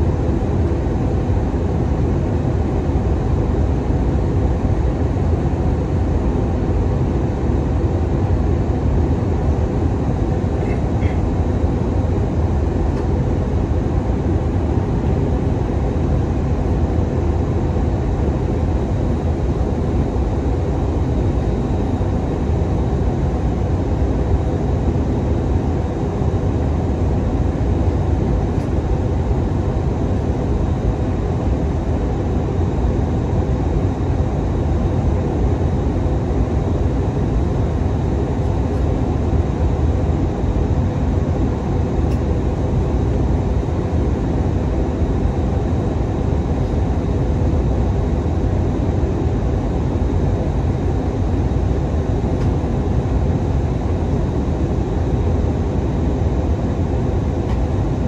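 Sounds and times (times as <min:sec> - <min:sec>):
aircraft engine drone: 0:00.0 - 0:58.0.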